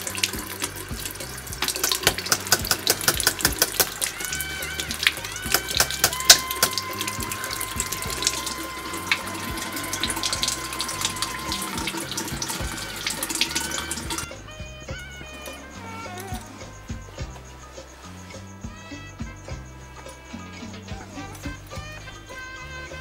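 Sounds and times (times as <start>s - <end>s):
faucet running into a sink: 0.0s - 14.3s.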